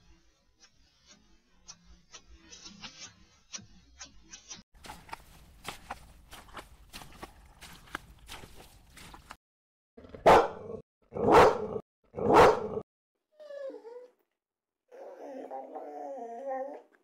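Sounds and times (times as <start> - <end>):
dog paws pattering: 4.8 - 9.4
dog barking deeply: 10.2 - 12.8
dog whining: 13.3 - 14.2, 14.9 - 17.0.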